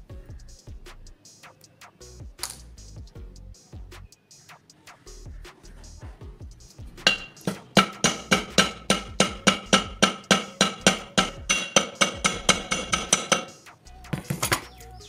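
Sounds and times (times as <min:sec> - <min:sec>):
hammer striking metal rivet: 0:07.1 - 0:13.6.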